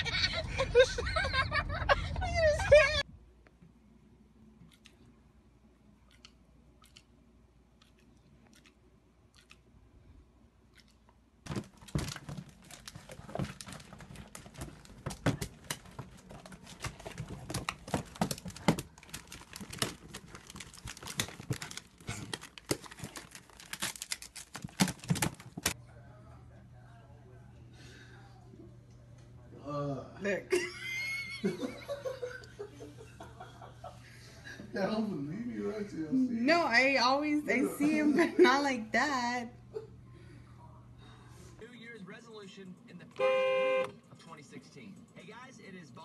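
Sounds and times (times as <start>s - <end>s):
plastic bag crinkling: 11.5s - 25.8s.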